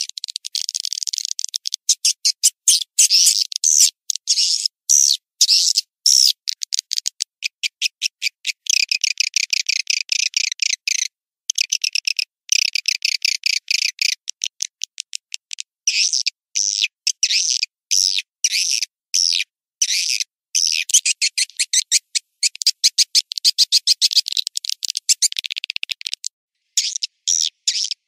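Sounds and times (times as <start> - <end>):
high twittering bird chirps: 0.0 - 8.9, 15.9 - 28.0
fast clicking chatter: 24.4 - 26.3.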